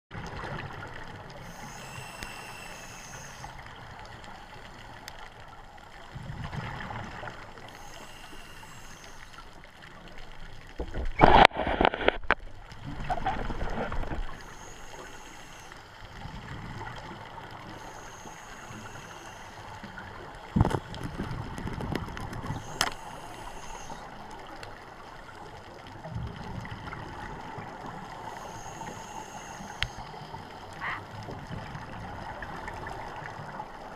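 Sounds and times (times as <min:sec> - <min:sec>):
exhaled bubbles gurgling: 0:00.1 - 0:09.4, 0:12.6 - 0:33.9
diver breathing through regulator: 0:01.4 - 0:03.6, 0:07.6 - 0:09.5, 0:14.3 - 0:15.9, 0:17.6 - 0:20.0, 0:22.5 - 0:24.2, 0:28.2 - 0:31.0.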